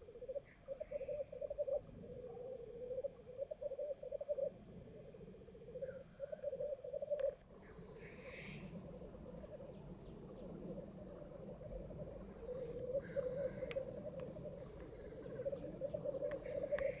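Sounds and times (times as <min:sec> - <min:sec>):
grouse bubbling cooing chorus: 0:00.0 - 0:17.0
short hissing bird call: 0:08.0 - 0:08.7.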